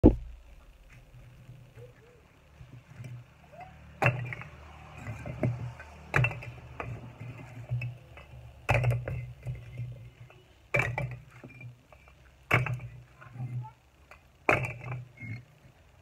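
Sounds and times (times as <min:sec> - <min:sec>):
bricks clinking and knocking: 0:03.9 - 0:15.8.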